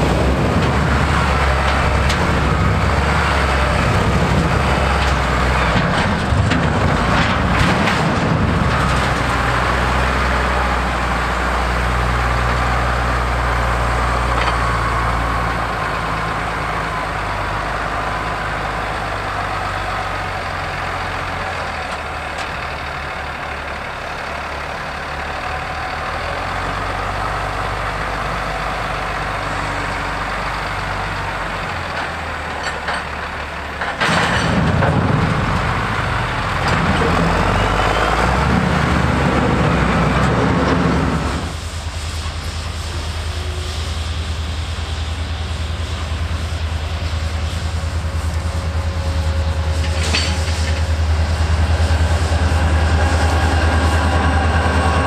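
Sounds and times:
locomotive low hum: 0.0s - 55.0s
wheel loader diesel engine: 0.0s - 55.0s
metal grinding scrape on ground: 45.5s - 55.0s.

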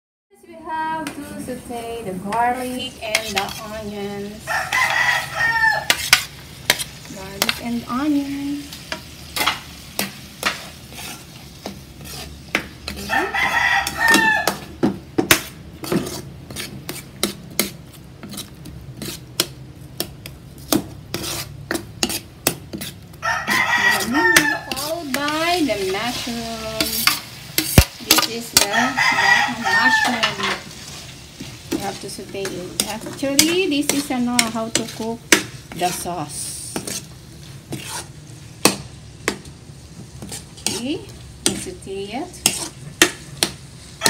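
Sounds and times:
garlic and onion sizzling in oil: 0.4s - 44.0s
metal ladle scraping a wok: 2.0s - 38.8s, 40.0s - 43.1s
rooster crowing: 4.4s - 6.0s, 13.0s - 14.7s, 23.2s - 24.8s, 28.6s - 30.6s.

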